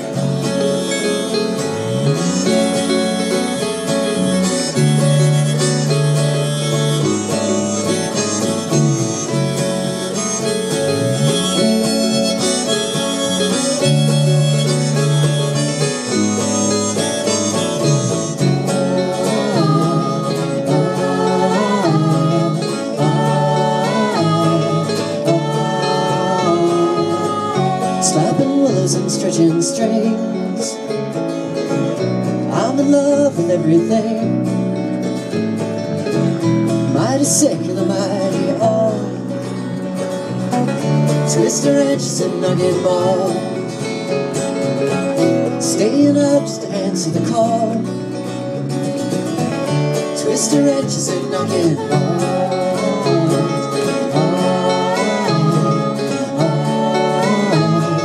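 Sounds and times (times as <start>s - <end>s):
acoustic guitar: 0.0s - 58.0s
bass sliding notes: 0.0s - 58.0s
lead melody with bent notes: 0.0s - 58.0s
mandolin: 0.0s - 58.0s.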